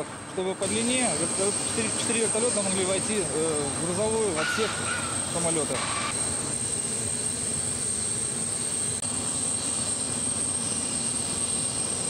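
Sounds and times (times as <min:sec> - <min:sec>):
aircraft turbine whine and rumble: 0:00.0 - 0:12.0.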